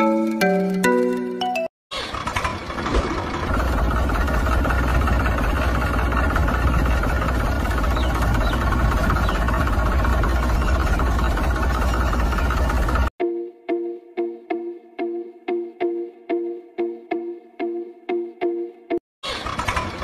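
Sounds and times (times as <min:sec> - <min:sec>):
diesel engine idling: 0:02.0 - 0:13.1.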